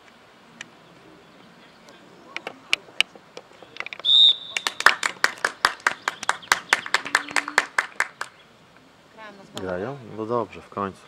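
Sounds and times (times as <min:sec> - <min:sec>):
referee's whistle blast: 0:04.0 - 0:04.9
people clapping: 0:04.3 - 0:08.4.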